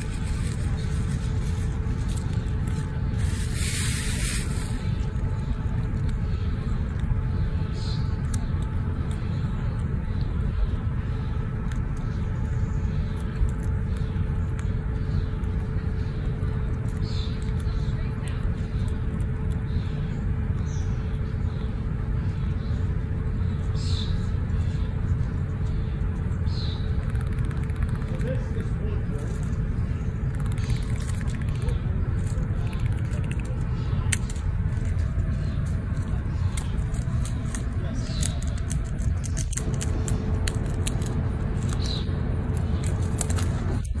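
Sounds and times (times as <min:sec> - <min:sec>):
faint constant hum: 0:00.0 - 0:44.0
low rumbling background noise: 0:00.0 - 0:44.0
sharp ticks and clicks: 0:26.8 - 0:28.7, 0:30.2 - 0:35.0.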